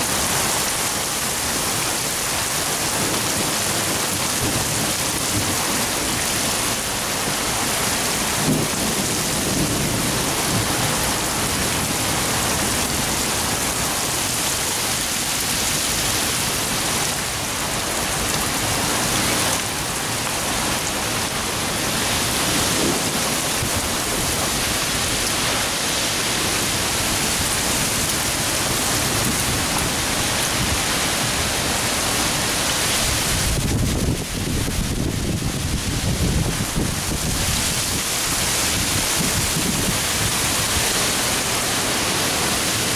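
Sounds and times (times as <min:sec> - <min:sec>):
heavy rain pouring: 0:00.0 - 0:42.9
wind buffeting microphone: 0:21.5 - 0:41.0.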